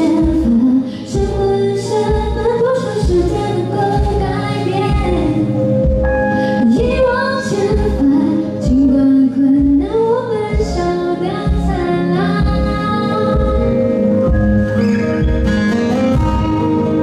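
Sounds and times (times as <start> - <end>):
woman singing: 0.0 - 5.8, 6.4 - 14.1.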